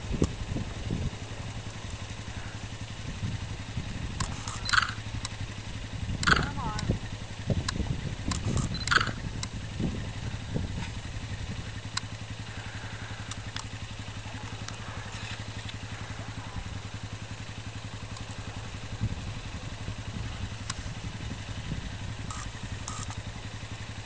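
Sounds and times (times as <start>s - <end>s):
small engine idling: 0.0s - 24.0s
short sharp clicks: 6.2s - 6.9s.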